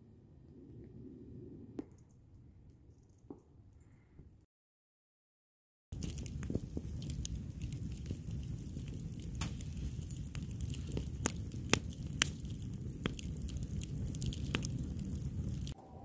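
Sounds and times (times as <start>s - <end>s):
campfire crackling and popping: 5.9s - 15.8s
low rush of flame: 6.0s - 15.8s.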